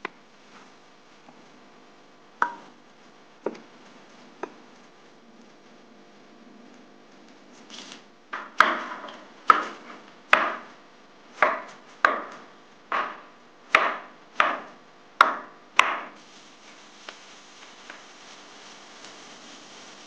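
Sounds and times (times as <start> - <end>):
knife chopping on cutting board: 8.4 - 10.7, 11.4 - 16.2.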